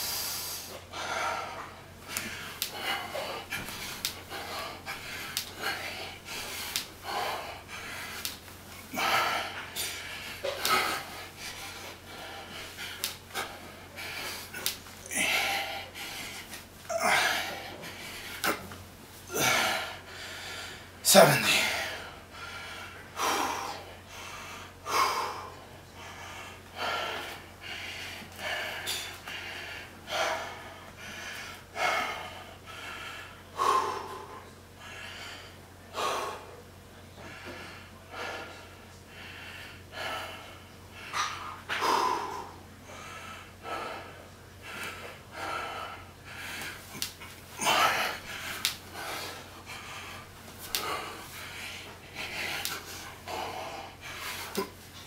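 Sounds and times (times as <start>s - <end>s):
man breathing hard: 0.0s - 55.0s.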